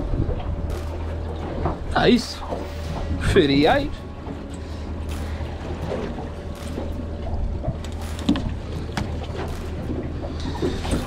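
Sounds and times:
low rumble: 0.0 - 11.0
water lapping around boat: 0.0 - 11.0
sharp knocks on boat: 5.0 - 11.0.

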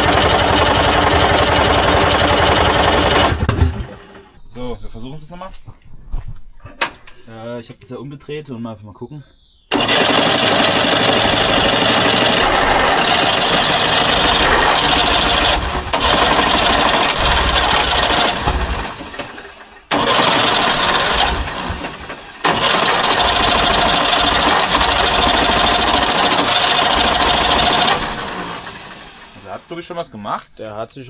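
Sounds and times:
engine cranking on starter: 0.0 - 4.4, 9.7 - 29.6.

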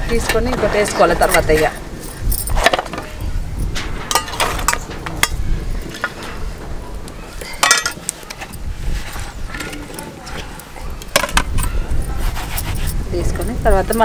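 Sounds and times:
steel plate clinking: 0.1 - 14.0
metal spatula on iron griddle: 2.4 - 6.6.

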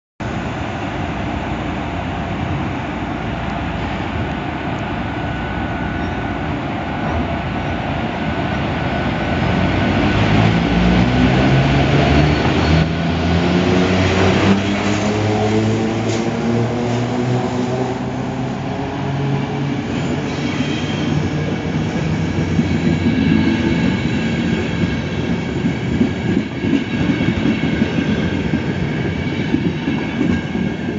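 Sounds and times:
high wheel squeal: 19.9 - 21.4.

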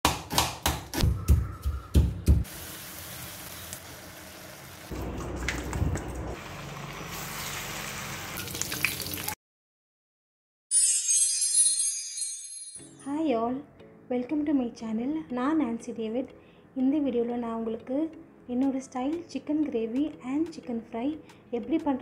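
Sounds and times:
knife chopping onions on board: 0.0 - 2.5
hot oil sizzling in a pan: 2.5 - 4.9, 6.4 - 9.4.

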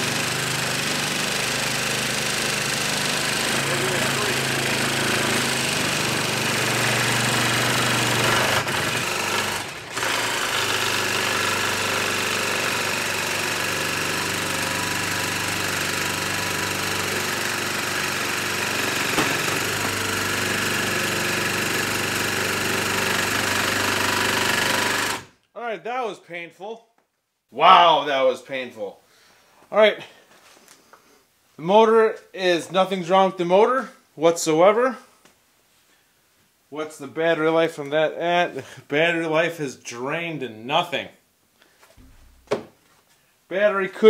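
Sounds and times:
jigsaw sawing through wood: 0.0 - 25.3.

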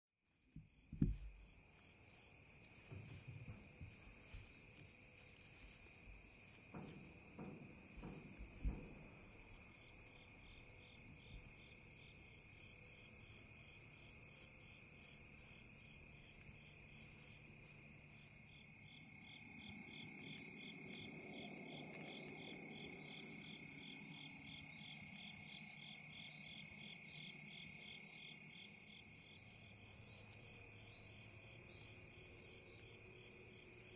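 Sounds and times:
pulsing insect chirp: 0.4 - 33.9
soft knocks: 0.6 - 1.5, 2.8 - 4.5, 6.4 - 9.6
insects trilling: 0.6 - 33.9.

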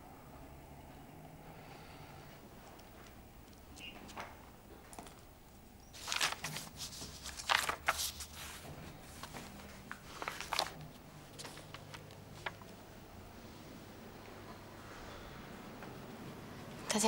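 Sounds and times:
faint low room hum: 0.0 - 17.0
soft rustling and shuffling: 2.3 - 12.9.

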